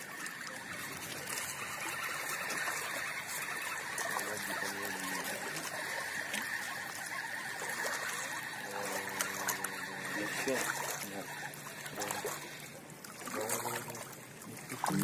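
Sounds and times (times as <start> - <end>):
river water lapping on rocks: 0.0 - 15.0.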